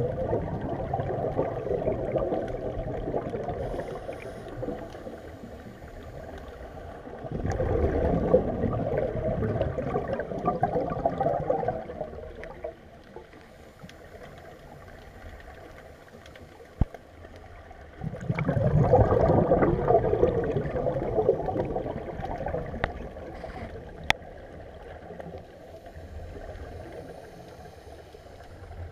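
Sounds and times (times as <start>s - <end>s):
underwater air bubbling: 0.0s - 28.9s
quiet hiss: 0.1s - 18.3s, 20.6s - 28.9s.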